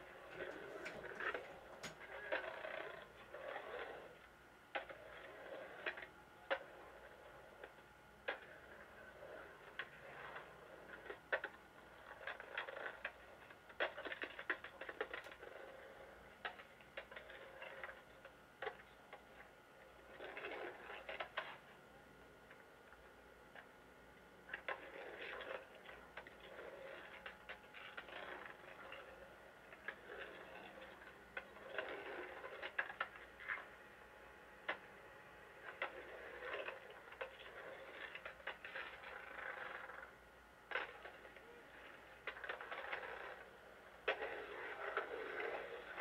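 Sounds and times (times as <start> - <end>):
skateboard clacking on concrete: 0.0 - 4.0, 8.3 - 18.0, 24.5 - 33.7, 35.6 - 40.1, 40.7 - 46.0
skateboard wheels rolling on concrete: 0.0 - 23.7, 24.3 - 46.0.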